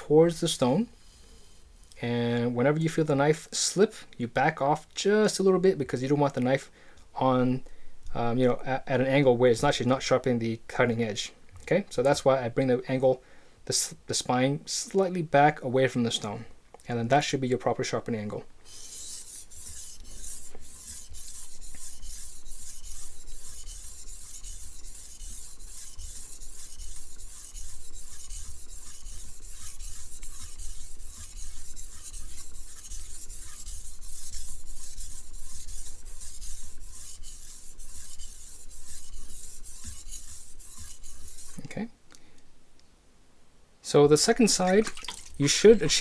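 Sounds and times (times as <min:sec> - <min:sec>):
knife scraping on whetstone: 0:18.7 - 0:41.7.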